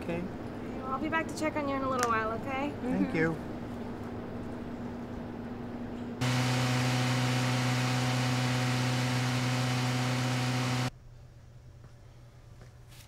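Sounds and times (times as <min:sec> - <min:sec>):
diesel generator running: 0:06.2 - 0:10.9.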